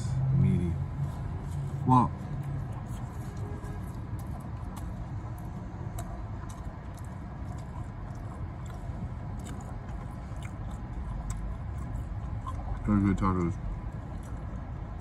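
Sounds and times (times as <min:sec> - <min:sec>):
steady low rumble: 0:00.0 - 0:15.0
man chewing food: 0:00.9 - 0:15.0.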